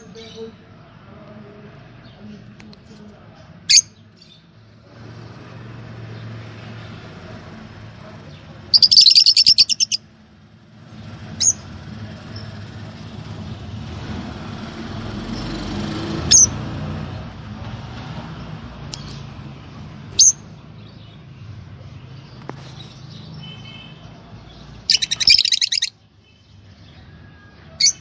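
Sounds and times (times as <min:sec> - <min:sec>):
lovebirds chattering: 0:00.0 - 0:04.6, 0:08.3 - 0:10.1, 0:11.1 - 0:12.9, 0:16.3 - 0:16.6, 0:18.8 - 0:27.0, 0:27.7 - 0:28.0
sharp bird chirps: 0:08.7 - 0:10.0, 0:24.8 - 0:26.4.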